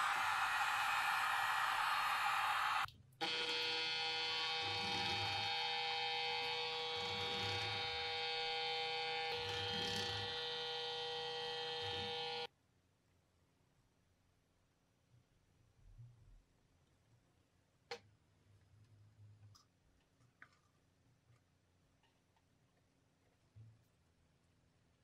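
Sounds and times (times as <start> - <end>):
cordless drill whining hum: 0.0 - 12.5
heat gun blowing: 0.0 - 12.5.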